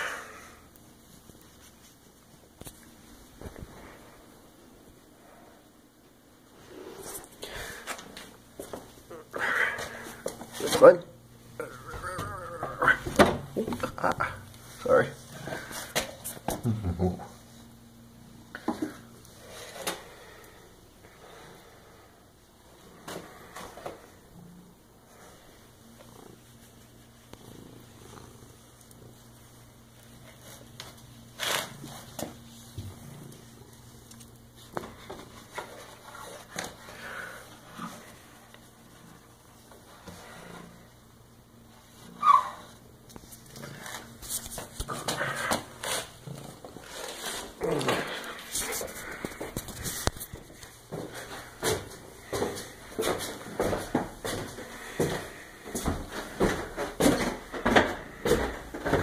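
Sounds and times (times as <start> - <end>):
cat purring: 22.8 - 30.6.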